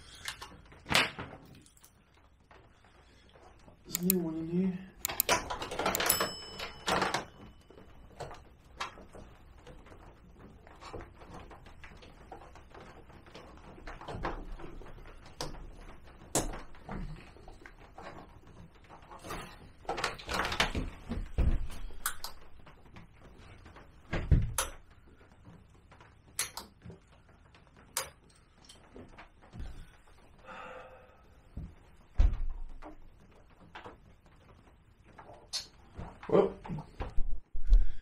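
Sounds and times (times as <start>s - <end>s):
parts being handled: 5.0s - 24.9s.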